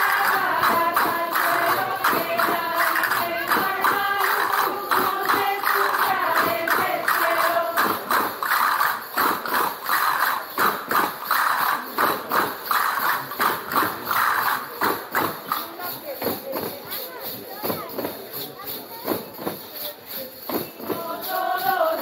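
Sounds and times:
women singing folk song: 0.0 - 8.4, 20.8 - 22.0
tambourines beating: 0.0 - 22.0.

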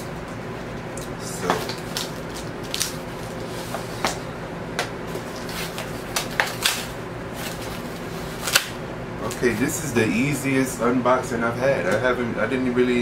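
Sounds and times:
cardboard snapping: 4.8 - 7.8, 8.4 - 9.5.

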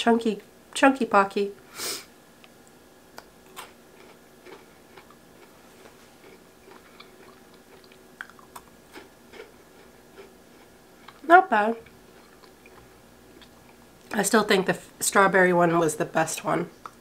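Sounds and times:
biscuit stick crunching: 3.2 - 11.2.

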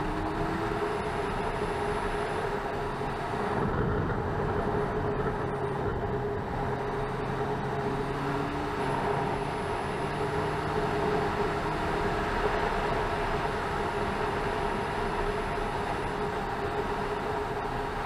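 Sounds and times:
muffled motorcycle engine cruising: 0.0 - 18.0
wind rush: 2.9 - 6.8.

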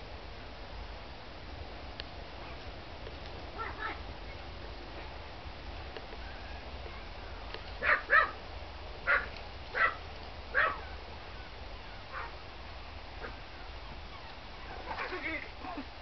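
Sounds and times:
small dogs barking: 3.6 - 4.0, 7.8 - 8.4, 9.0 - 11.0, 11.9 - 12.4, 13.2 - 15.4.

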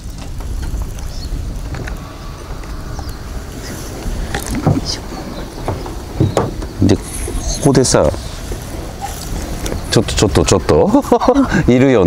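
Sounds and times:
faint clicks: 0.0 - 5.9
rustles: 0.0 - 11.4
wind buffeting microphone: 0.0 - 12.0.

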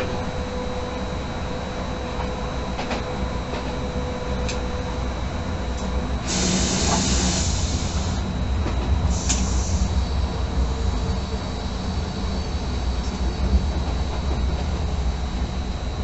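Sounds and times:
train running low rumble: 0.0 - 16.0
loud hissing rush: 6.2 - 8.3, 9.1 - 12.9.

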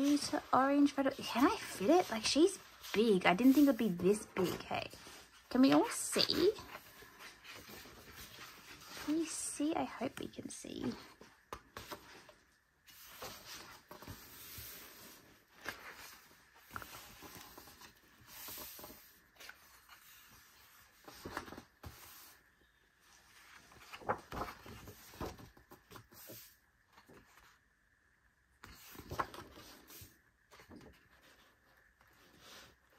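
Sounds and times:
paper pages rustling and sliding: 0.0 - 10.1, 10.8 - 27.6, 28.6 - 32.9
pages tapping and flapping: 23.5 - 26.3, 28.7 - 29.8.

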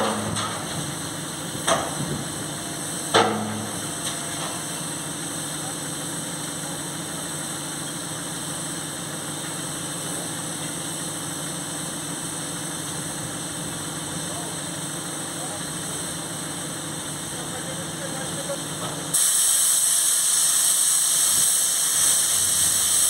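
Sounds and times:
diesel locomotive idling: 0.0 - 23.0
sharp metallic knocks: 3.1 - 4.6.

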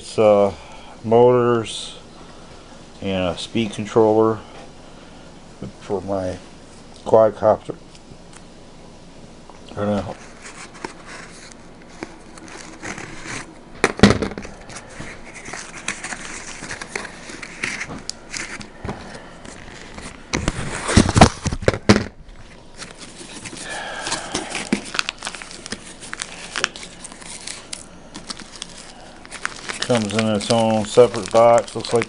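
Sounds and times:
cardboard rustling and crinkling: 10.1 - 32.0
knife slitting packing tape: 29.4 - 32.0.

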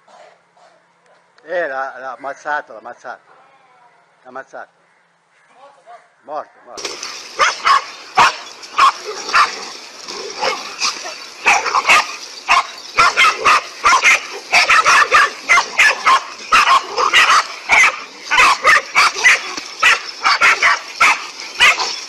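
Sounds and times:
dogs barking rapidly: 6.8 - 22.0.

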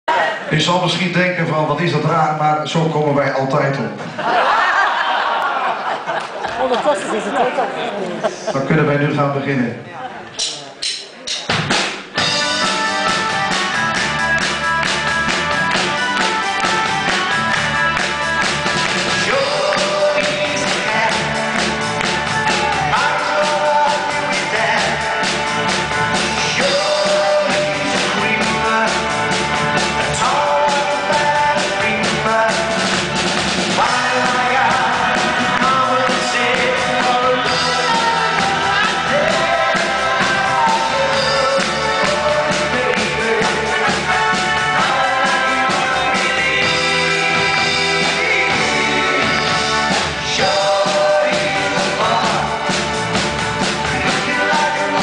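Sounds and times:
pop-rock band playing: 10.4 - 55.0
man singing lead: 19.1 - 25.5, 26.3 - 29.4, 30.0 - 33.0, 33.7 - 52.9, 54.0 - 55.0.

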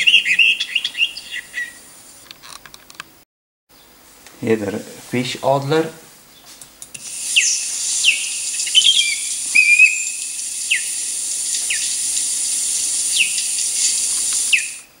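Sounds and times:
osprey whistled calls: 0.0 - 1.9, 7.2 - 15.0
steady hiss: 6.9 - 15.0.

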